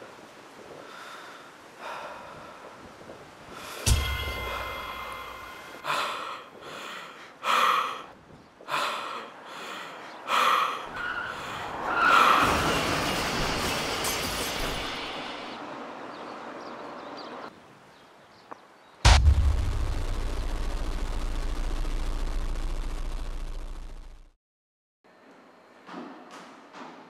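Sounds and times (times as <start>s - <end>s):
person gasping for breath: 3.6s - 8.1s.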